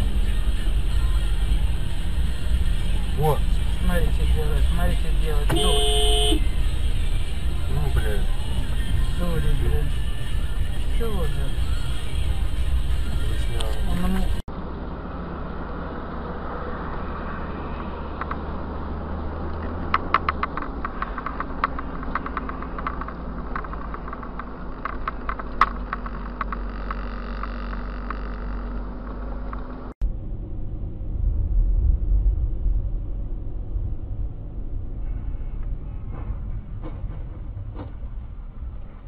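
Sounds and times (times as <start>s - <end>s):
car engine and road rumble: 0.0s - 39.0s
heavy low rumble: 0.0s - 39.0s
sharp clicks: 19.5s - 29.7s.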